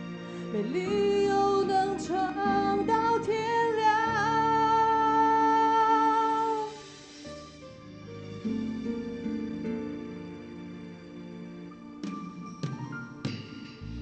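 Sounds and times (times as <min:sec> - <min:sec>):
woman singing pop ballad: 0:00.5 - 0:06.9
backing music: 0:06.4 - 0:14.0.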